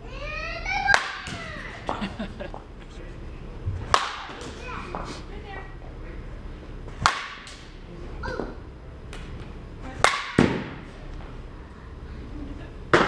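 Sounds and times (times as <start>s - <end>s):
bat hitting a softball: 3.9s - 4.5s, 7.0s - 7.7s, 10.0s - 10.9s.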